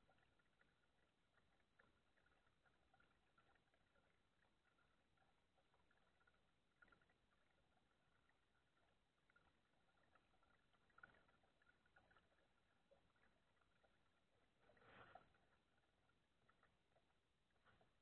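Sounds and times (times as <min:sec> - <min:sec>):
faint rustle: 0:14.6 - 0:15.6.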